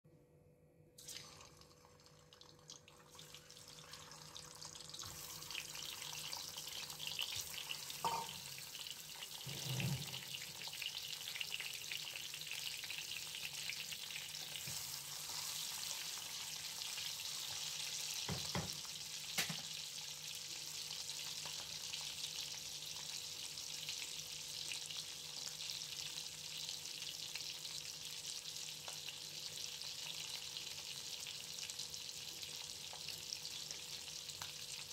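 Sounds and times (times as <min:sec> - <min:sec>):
food sizzling in oil: 0:01.0 - 0:34.9
knocks in a pan: 0:08.0 - 0:08.4, 0:18.2 - 0:19.7.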